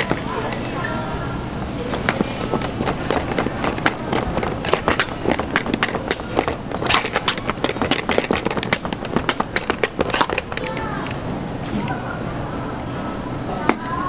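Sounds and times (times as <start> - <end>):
utensil beating in metal pot: 1.8 - 11.2.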